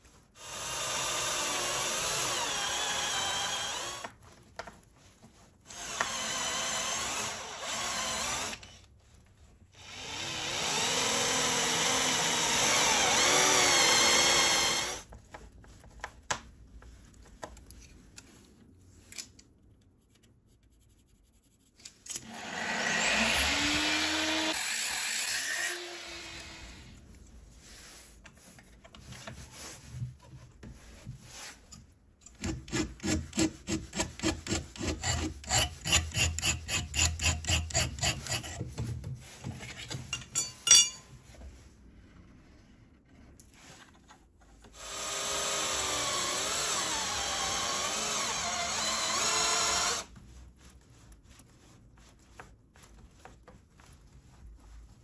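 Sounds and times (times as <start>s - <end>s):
cordless drill drilling metal: 0.4s - 4.1s, 5.7s - 8.8s, 9.8s - 15.0s, 22.1s - 26.9s, 44.8s - 50.1s.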